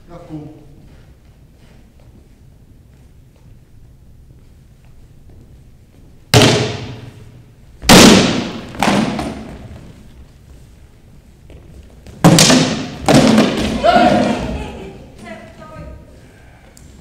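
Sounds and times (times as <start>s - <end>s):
sword blows on wooden shields: 6.4s - 7.2s, 12.2s - 14.3s.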